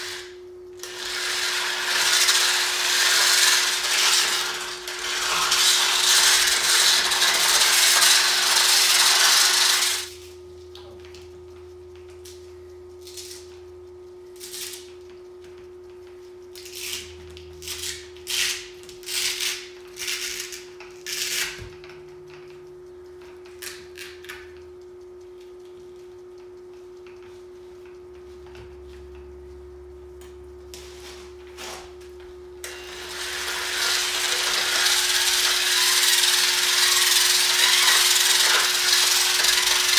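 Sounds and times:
polisher grinding concrete: 0.9 - 10.1, 32.9 - 39.9
faint steady hum: 10.0 - 39.9.

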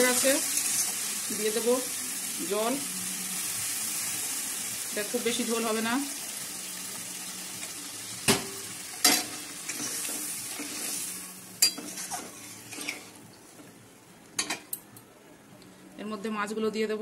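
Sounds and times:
water sizzling in hot oil: 0.0 - 13.3.

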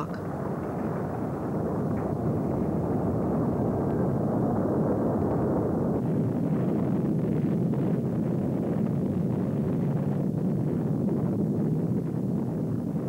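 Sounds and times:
lava flow roaring: 0.0 - 13.0.

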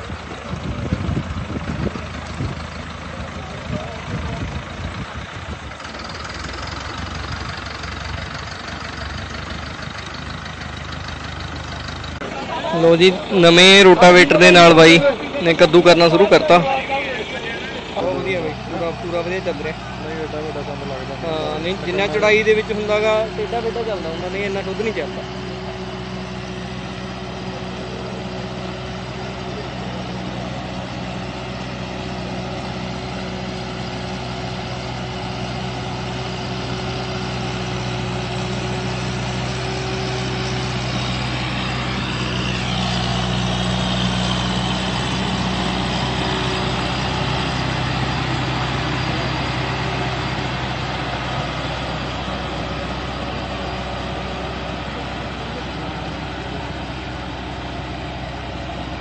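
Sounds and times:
tractor diesel engine under load: 0.0 - 59.0.

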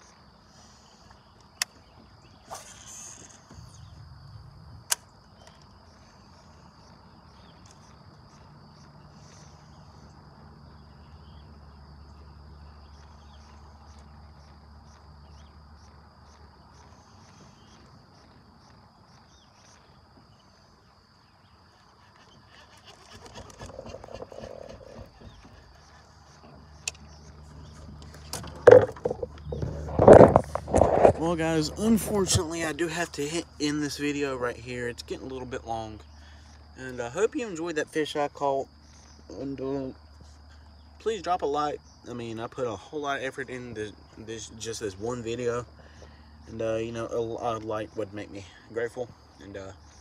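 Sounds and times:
frogs and insects chirring: 0.0 - 50.0
sharp clicks: 4.9 - 5.6, 26.8 - 27.1
low hum: 23.4 - 33.6.

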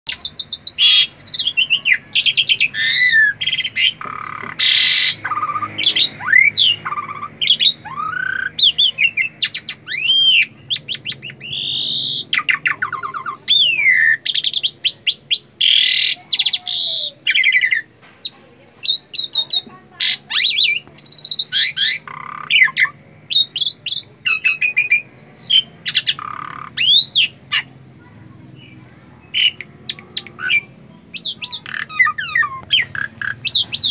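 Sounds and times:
starling singing chattering song: 0.1 - 33.9.

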